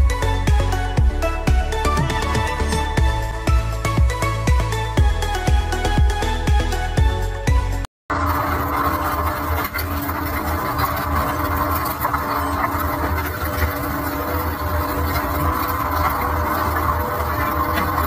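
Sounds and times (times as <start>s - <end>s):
boat engine droning: 8.1s - 18.0s.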